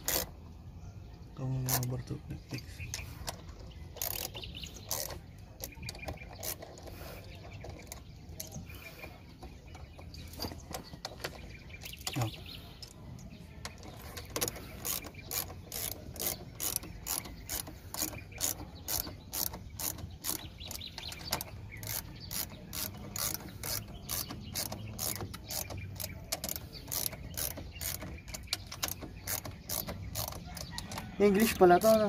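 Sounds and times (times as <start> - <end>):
ratchet wrench clicking: 0.0 - 0.3, 2.9 - 7.0, 13.7 - 32.0.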